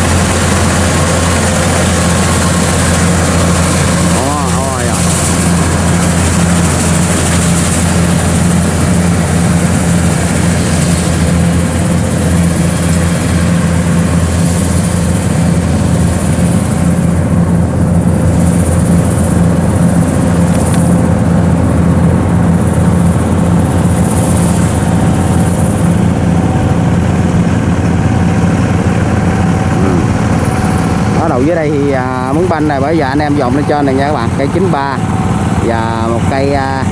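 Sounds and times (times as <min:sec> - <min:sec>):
combine harvester running: 0:00.0 - 0:36.9.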